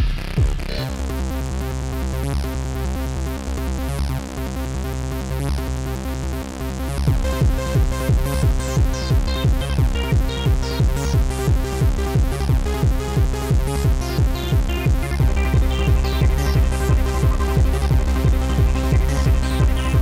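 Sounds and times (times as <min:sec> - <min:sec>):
electronic dance music: 0:00.0 - 0:01.5, 0:06.8 - 0:20.0.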